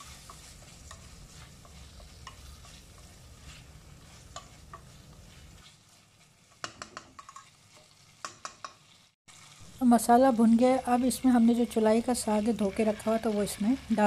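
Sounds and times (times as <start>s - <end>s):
spatula scraping and tapping pan: 0.0s - 9.0s
faint sizzling: 0.0s - 14.0s.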